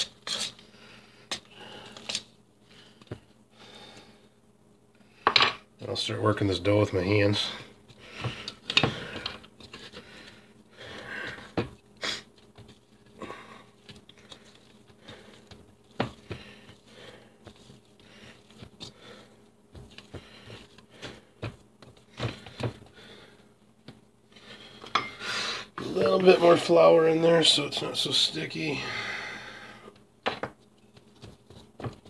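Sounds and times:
dough squishing: 6.6s - 24.6s, 30.6s - 32.0s.

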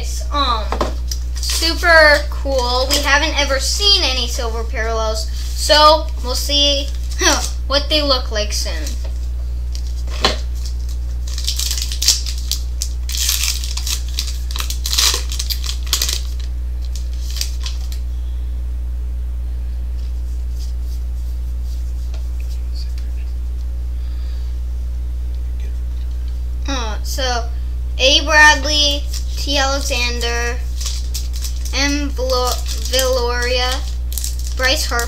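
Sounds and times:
steady low hum: 0.0s - 35.0s
foil wrappers crinkling and tearing: 1.0s - 4.4s, 5.3s - 7.6s, 9.7s - 18.0s, 28.6s - 35.0s.

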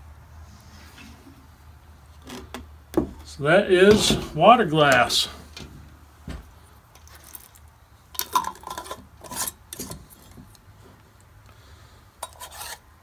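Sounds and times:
metal lid scraping jar threads: 8.2s - 10.4s, 12.2s - 12.8s.

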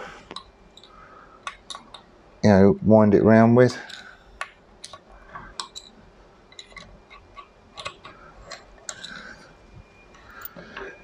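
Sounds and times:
metallic clicks and scrapes: 3.8s - 9.5s.

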